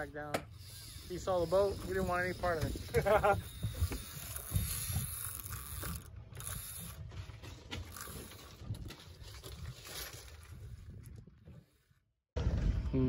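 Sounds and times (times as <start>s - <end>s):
low rumble of wind: 0.0s - 13.0s
water: 0.0s - 13.0s
fishing reel gears ticking: 0.5s - 7.0s, 7.9s - 8.6s.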